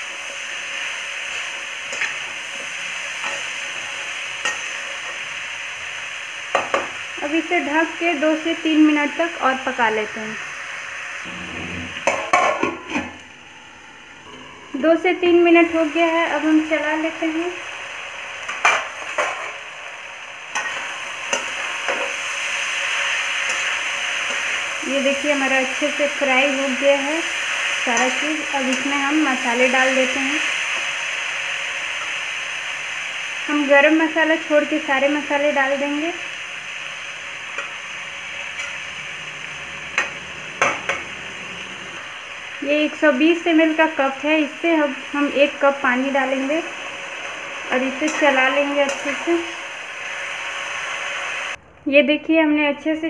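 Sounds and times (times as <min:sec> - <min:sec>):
vegetables sizzling: 0:00.0 - 0:51.6
metal spatula scraping pan: 0:47.7 - 0:49.4.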